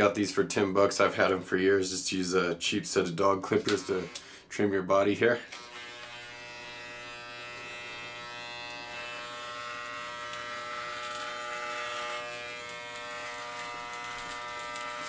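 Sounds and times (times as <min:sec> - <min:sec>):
electric clippers buzzing: 0:05.5 - 0:15.0.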